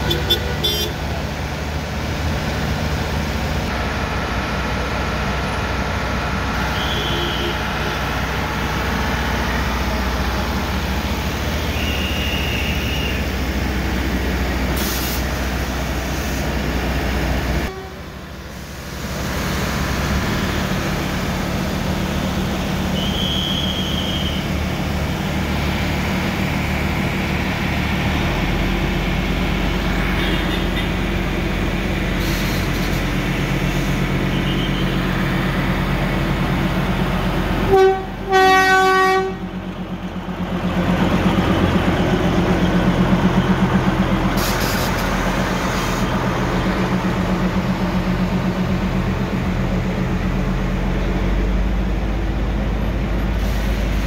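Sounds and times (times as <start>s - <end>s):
diesel locomotive droning: 0.0s - 54.0s
train horn: 6.7s - 8.0s, 17.6s - 18.1s, 37.7s - 39.5s.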